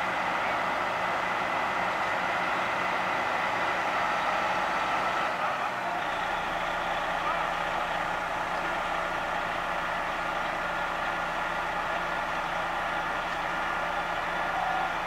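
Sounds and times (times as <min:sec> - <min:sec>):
fire truck engine idling: 0:00.0 - 0:15.0.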